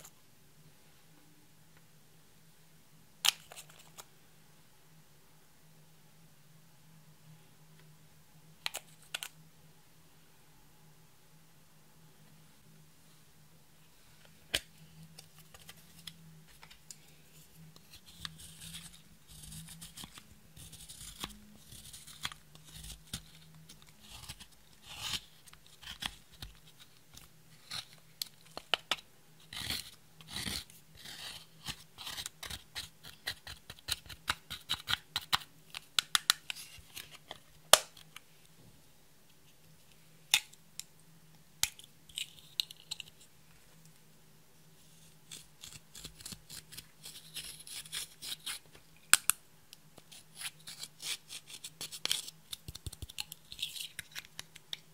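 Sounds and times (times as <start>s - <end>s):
spatula scraping eyeshadow: 17.7s - 34.9s, 45.3s - 48.6s.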